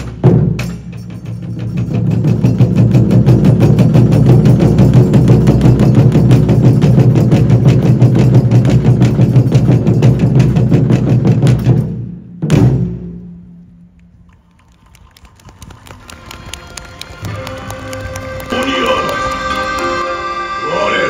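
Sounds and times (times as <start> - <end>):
taiko drum roll: 0.0 - 13.5.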